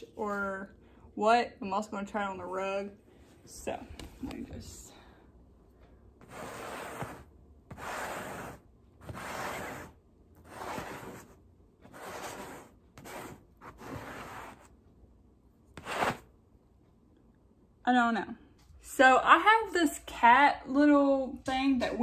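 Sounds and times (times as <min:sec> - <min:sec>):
pet hair remover rasping on fabric: 0:06.2 - 0:09.9.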